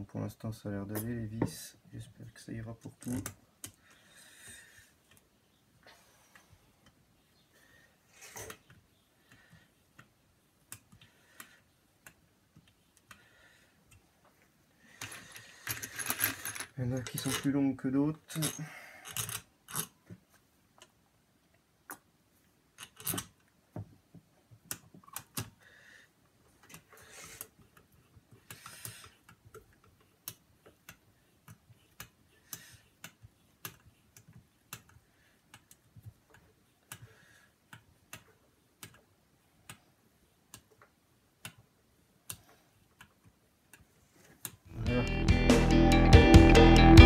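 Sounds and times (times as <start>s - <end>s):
small metal clicks of screws: 18.3s - 19.9s.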